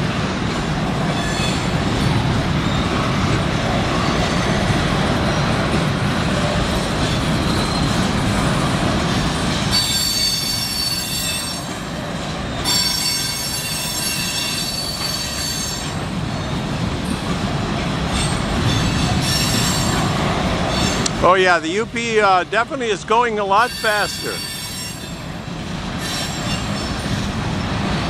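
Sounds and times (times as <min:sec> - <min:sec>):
freight train cars rolling: 0:00.0 - 0:28.0
high-pitched wheel squeal: 0:07.4 - 0:08.0, 0:09.7 - 0:11.7, 0:12.6 - 0:16.0, 0:23.6 - 0:25.2.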